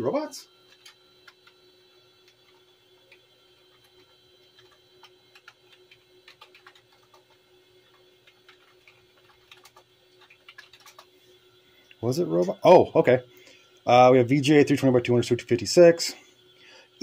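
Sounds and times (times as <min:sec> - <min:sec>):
faint steady hum: 0:00.0 - 0:17.0
keyboard typing clicks: 0:00.7 - 0:01.6, 0:03.8 - 0:07.4, 0:08.2 - 0:11.1.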